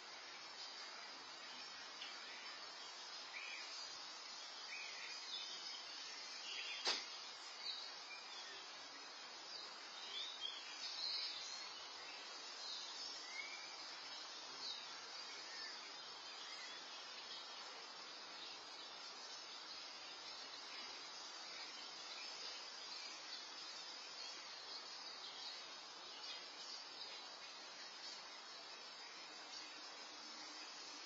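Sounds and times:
faint bird chirps: 0:00.0 - 0:31.0
microphone hiss: 0:00.0 - 0:31.0
sharp click: 0:06.8 - 0:07.1.

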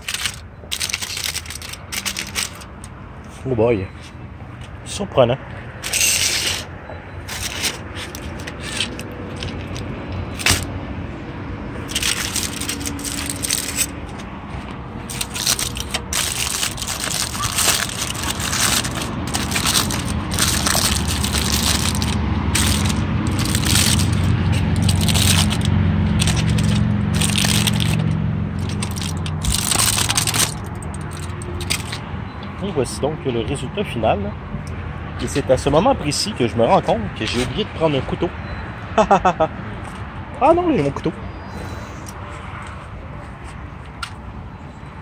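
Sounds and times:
aluminium foil crinkling: 0:00.0 - 0:02.7, 0:11.8 - 0:14.0, 0:15.1 - 0:32.0.

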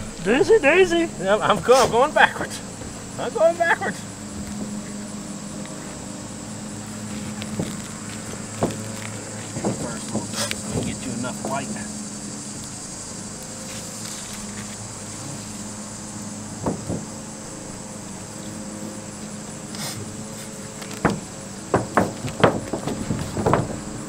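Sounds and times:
insect chirring: 0:00.0 - 0:24.0
taps and knocks on roof underlayment: 0:07.1 - 0:11.8, 0:16.6 - 0:17.2, 0:20.8 - 0:24.0.

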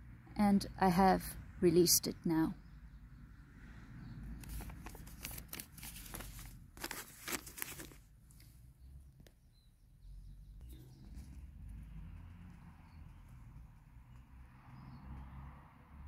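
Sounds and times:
handling noise crackling and clicking: 0:04.4 - 0:08.6.

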